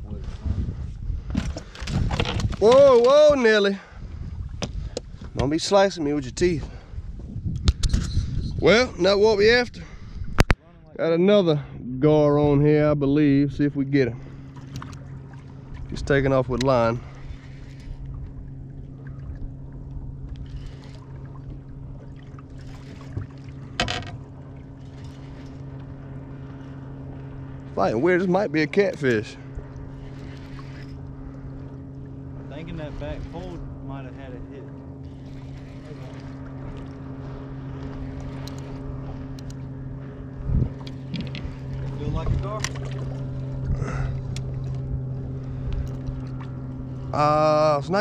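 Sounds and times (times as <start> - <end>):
boat motor humming: 0.0 - 48.0.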